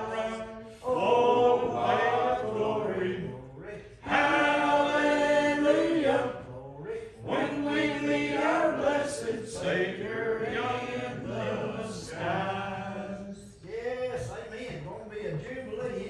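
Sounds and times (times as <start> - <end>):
congregation singing a hymn: 0.0 - 13.6.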